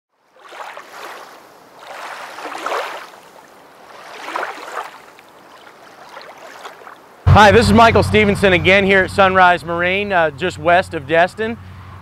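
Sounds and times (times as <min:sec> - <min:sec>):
rushing water: 0:00.1 - 0:07.3.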